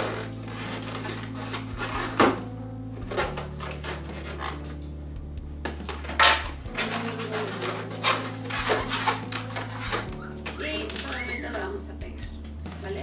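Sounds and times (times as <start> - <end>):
balloons squeaking and rubbing: 0.0 - 2.4, 3.0 - 4.9, 6.1 - 11.7.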